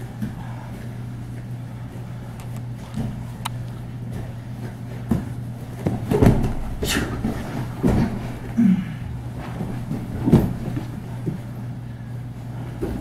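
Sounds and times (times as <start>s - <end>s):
steady low hum: 0.0s - 13.0s
bodies thudding on a mat: 3.0s - 11.6s.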